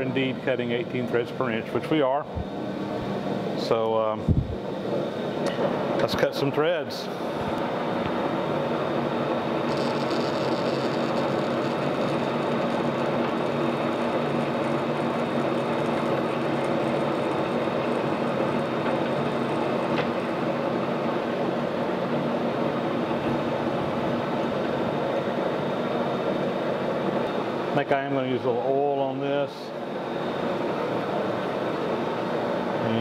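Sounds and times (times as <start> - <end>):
metal lathe geared hum: 7.4 - 27.8.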